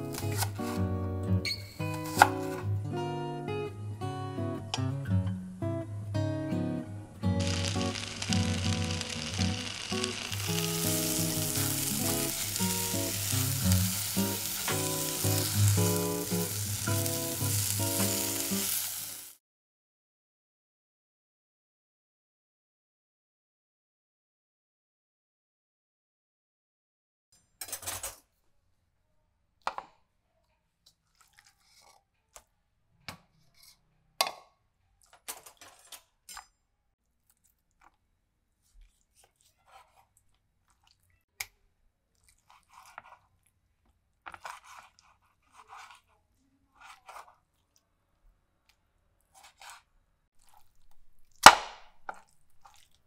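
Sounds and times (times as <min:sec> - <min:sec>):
knife slicing chicken: 0:00.0 - 0:00.8, 0:01.9 - 0:02.6, 0:49.3 - 0:49.9.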